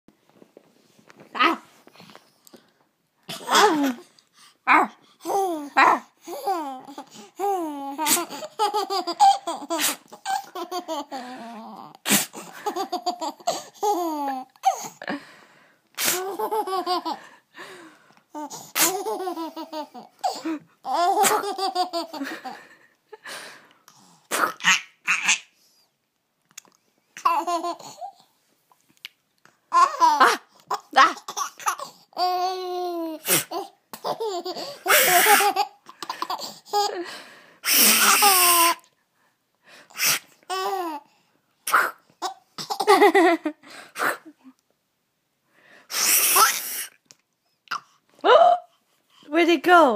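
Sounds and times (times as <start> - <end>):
baby giggling: 5.2 - 15.0, 16.0 - 17.2, 18.4 - 22.6, 24.4 - 25.5, 27.2 - 28.2, 29.7 - 37.0, 41.9 - 43.4.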